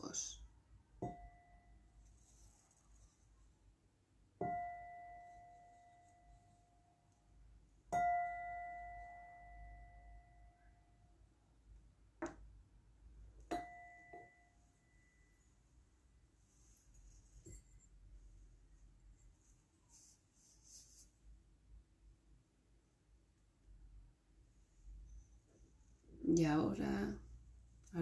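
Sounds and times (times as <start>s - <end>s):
meditation chime ringing: 8.0s - 10.6s.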